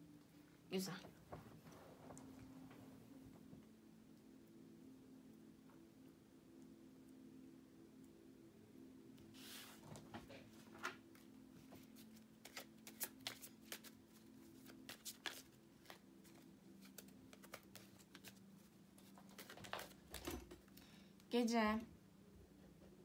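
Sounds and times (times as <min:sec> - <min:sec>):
cards shuffling: 0:11.8 - 0:20.8.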